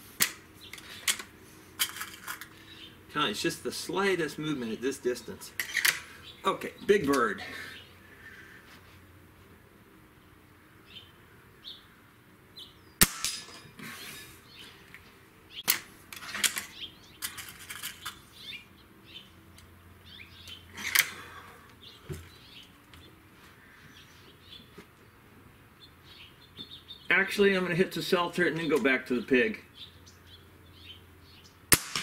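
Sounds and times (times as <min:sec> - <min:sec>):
small birds chirping: 0:00.4 - 0:01.8, 0:02.4 - 0:09.0, 0:10.0 - 0:13.0, 0:13.8 - 0:31.7
air rifle shot: 0:13.0 - 0:13.5, 0:31.7 - 0:32.0.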